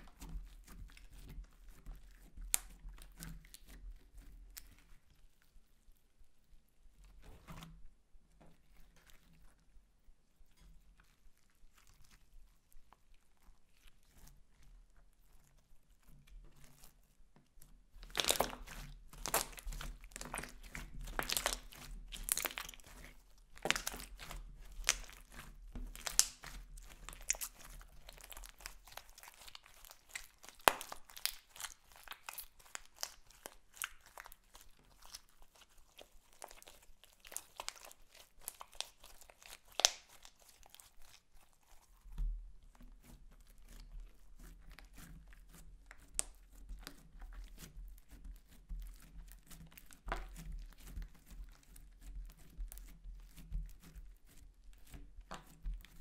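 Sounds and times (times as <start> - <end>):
slime crackling and popping: 2.4 - 3.7, 17.9 - 42.0, 44.7 - 47.6, 48.4 - 56.0.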